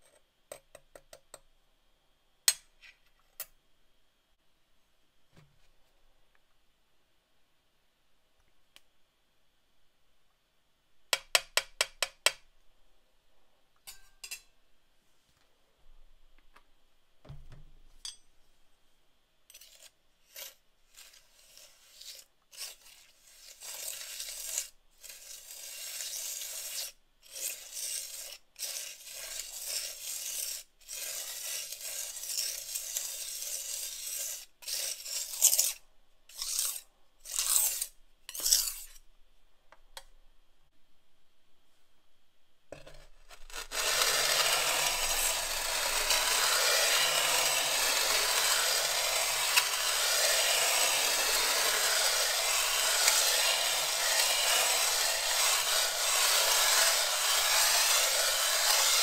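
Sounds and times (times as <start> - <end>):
palette knife scraping on glass: 19.5 - 39.0, 42.8 - 59.0.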